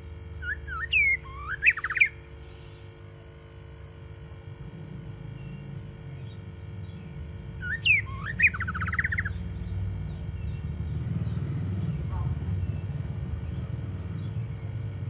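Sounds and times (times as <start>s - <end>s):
bird whistling and trilling: 0.4s - 2.8s, 7.6s - 9.4s
steady low rumble: 2.2s - 15.0s.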